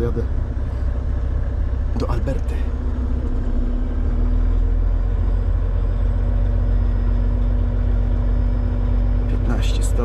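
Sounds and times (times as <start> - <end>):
truck diesel engine drone: 0.0 - 10.0.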